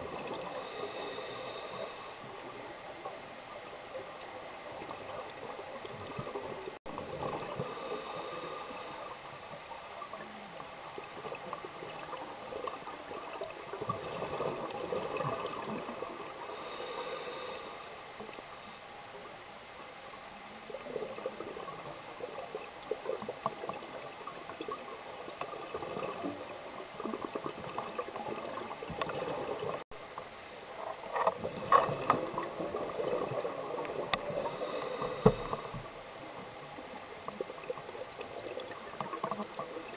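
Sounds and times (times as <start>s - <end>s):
underwater hiss: 0.2s - 3.0s, 7.2s - 19.9s, 29.1s - 37.4s.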